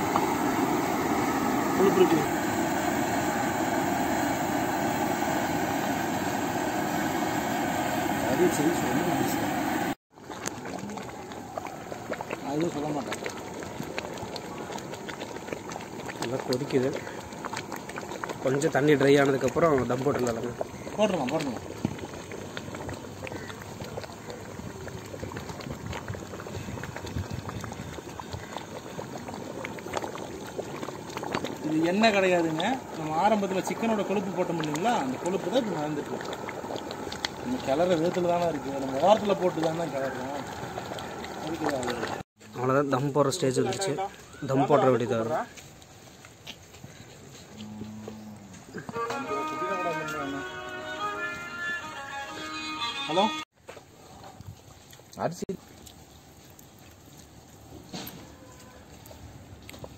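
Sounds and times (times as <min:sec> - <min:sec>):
gas burner rushing: 0:00.0 - 0:10.0
water boiling and bubbling in a pot: 0:00.0 - 0:50.0, 0:53.5 - 0:59.9.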